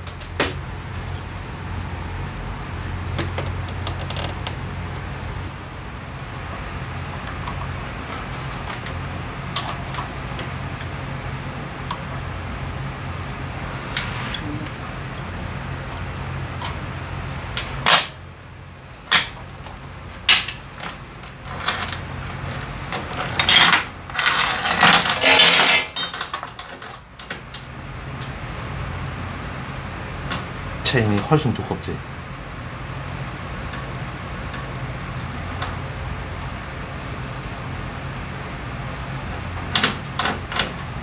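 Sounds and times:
steady low hum: 0:00.0 - 0:26.2.

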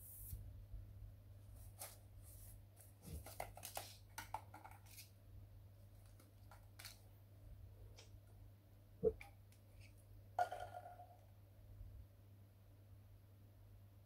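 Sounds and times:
low steady hum: 0:00.0 - 0:02.9.

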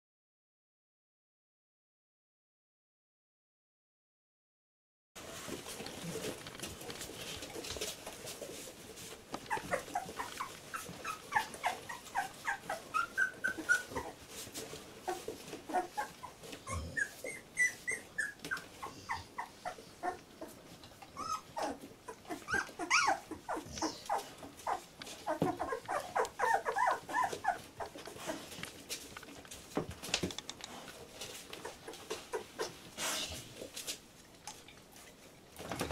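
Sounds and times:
puppies whimpering and squeaking: 0:07.0 - 0:29.4, 0:31.1 - 0:32.9.

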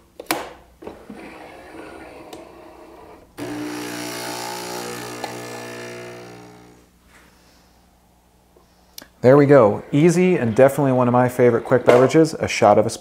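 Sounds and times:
espresso machine pump humming: 0:03.3 - 0:06.9.

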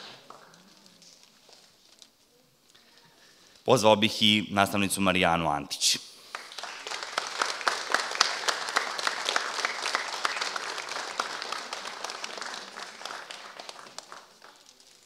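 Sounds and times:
audience applauding: 0:06.3 - 0:15.0.

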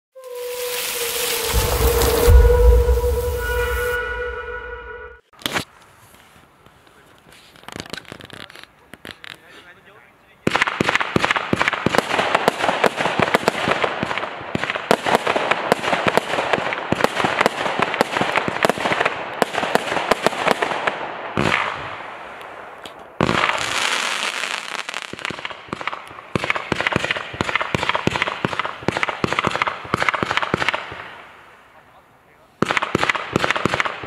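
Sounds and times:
crackling firework bursts: 0:00.2 - 0:04.4, 0:10.4 - 0:34.0
loud firework burst: 0:00.2 - 0:05.0.

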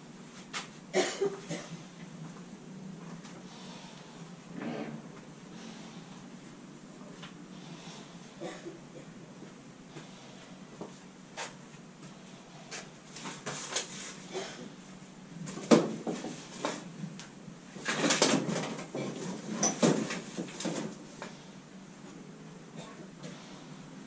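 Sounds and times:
rummaging through tools: 0:17.8 - 0:21.3
objects clattering: 0:17.8 - 0:21.4.

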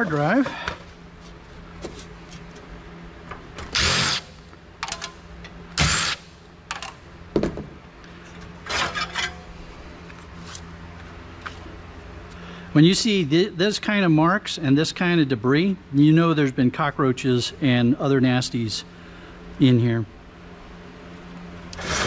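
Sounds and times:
cordless driver running: 0:03.6 - 0:04.3, 0:21.7 - 0:22.0
clicks and light metal clatter: 0:04.8 - 0:05.6.

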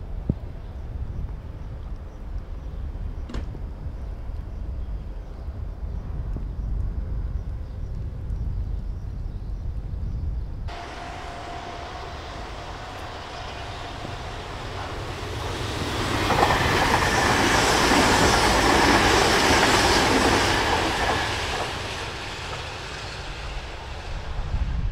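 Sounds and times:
electric train passing: 0:10.7 - 0:24.9.

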